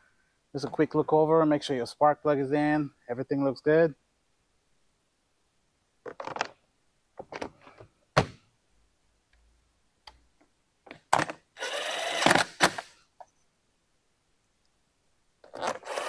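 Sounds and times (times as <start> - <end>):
cordless drill driving screw: 11.6 - 12.9, 15.5 - 16.0.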